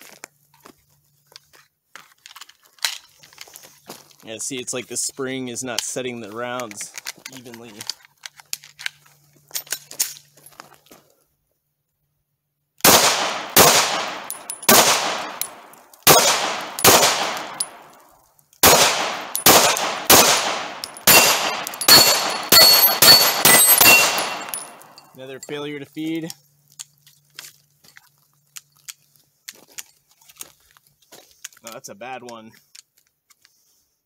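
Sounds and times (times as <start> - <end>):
pistol shots: 12.8 - 17.9, 18.6 - 25.0
bullets ringing on steel targets: 13.2 - 17.9, 18.6 - 25.8.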